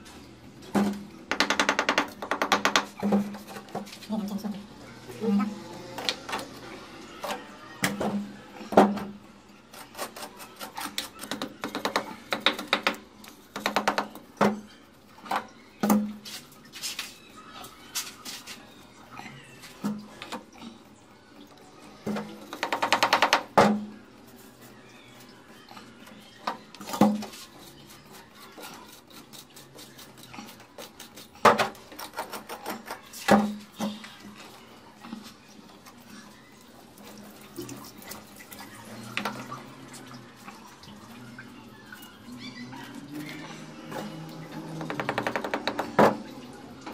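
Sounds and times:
hand tool tapping on tile: 1.3 - 3.0.

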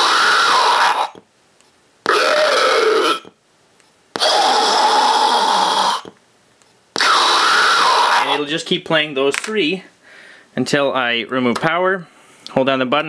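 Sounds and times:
zombie growls: 0.0 - 1.2, 2.1 - 3.3, 4.2 - 6.1, 7.0 - 8.5.

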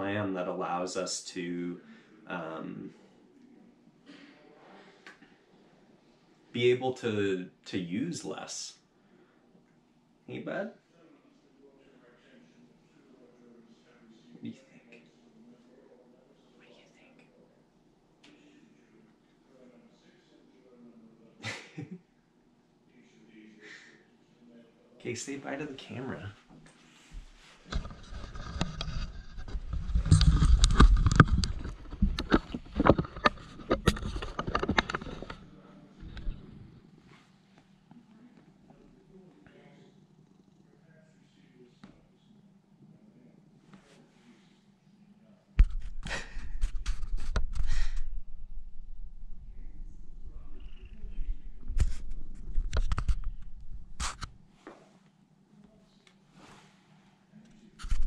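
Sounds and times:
cat rubbing against camera: 27.1 - 36.7, 45.6 - 54.4, 57.6 - 58.0.

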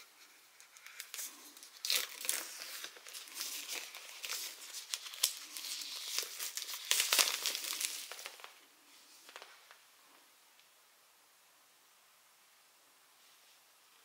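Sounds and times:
plastic shrink-wrap crinkling and tearing: 0.0 - 8.6.

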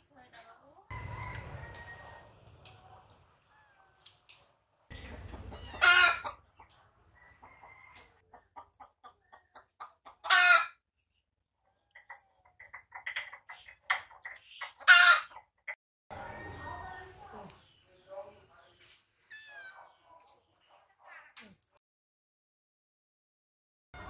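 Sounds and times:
chickens clucking: 0.7 - 17.8
chicken squawking: 5.1 - 6.4, 9.5 - 10.8, 12.0 - 15.5.

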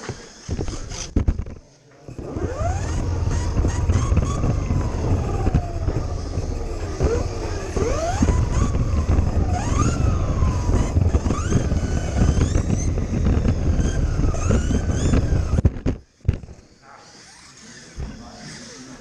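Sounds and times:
small knocks and rattles: 0.0 - 1.7, 2.9 - 16.6
small electric motor whine: 2.1 - 19.0
wind rumble: 2.2 - 16.5.

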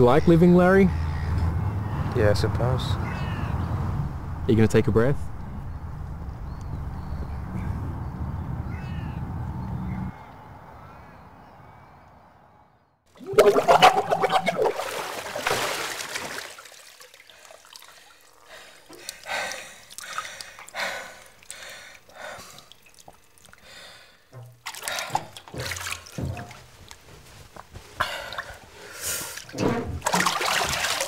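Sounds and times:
water sloshing and trickling: 13.1 - 31.0
loud water splash: 13.2 - 17.3, 30.0 - 31.0.

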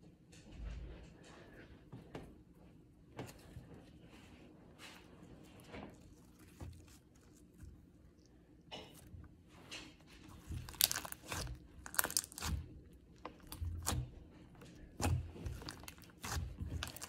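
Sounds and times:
slime crackling and popping: 10.4 - 14.1, 15.0 - 17.0.

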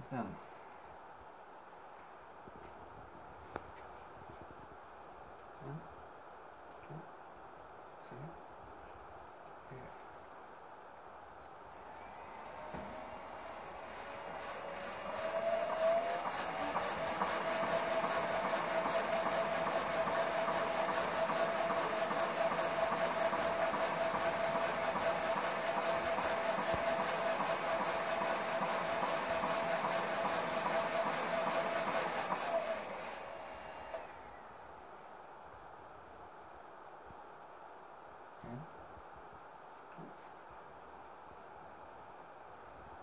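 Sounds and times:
electric motor whining: 11.4 - 34.0.

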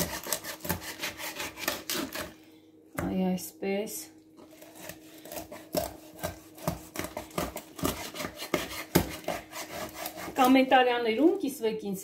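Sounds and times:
knife sawing through fish: 0.0 - 2.4, 4.5 - 10.5.

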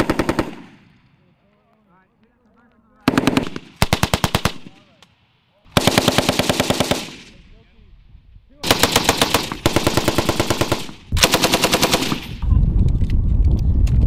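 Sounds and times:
machine gun firing bursts: 0.0 - 0.8, 3.0 - 4.7, 5.7 - 7.4, 8.6 - 12.4.

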